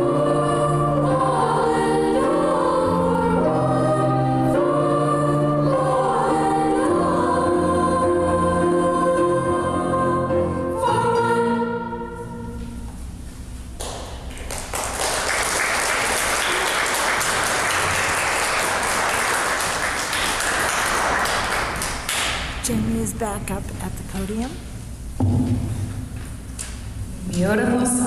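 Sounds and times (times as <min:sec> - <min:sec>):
group of voices singing: 0:00.0 - 0:12.6
audience applause: 0:14.3 - 0:22.5.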